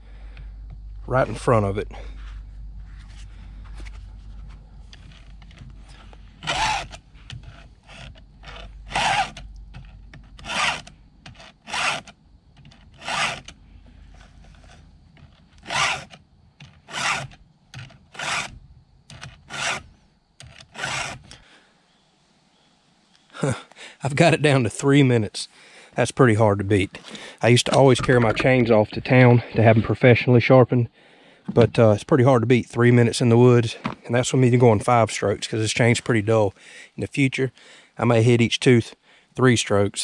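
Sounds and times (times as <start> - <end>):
files rasping on chain: 6.0 - 9.4, 10.4 - 12.1, 12.9 - 13.5, 15.6 - 16.2, 16.8 - 17.4, 18.1 - 21.4.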